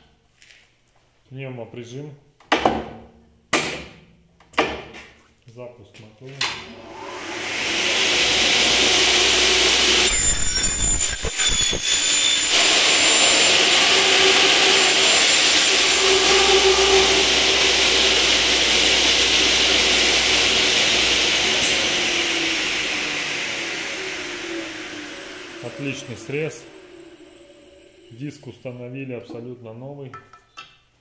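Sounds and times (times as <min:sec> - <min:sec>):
circular saw cutting aluminium: 0:06.8 - 0:28.8.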